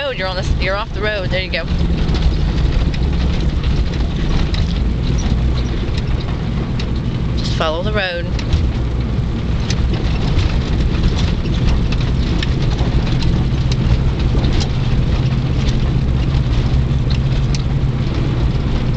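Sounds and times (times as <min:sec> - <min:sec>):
engine and road rumble: 0:00.0 - 0:18.9
tyres crackling on road: 0:00.0 - 0:18.9.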